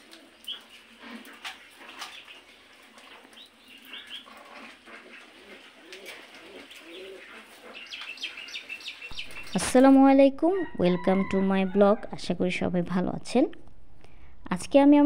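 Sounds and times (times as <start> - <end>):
low cooing calls: 3.3 - 9.5
budgerigars chirping: 7.7 - 9.6.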